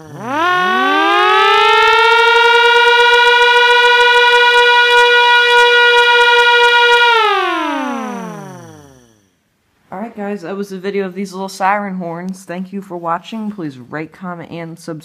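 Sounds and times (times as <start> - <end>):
electric siren horns wailing: 0.0 - 9.2.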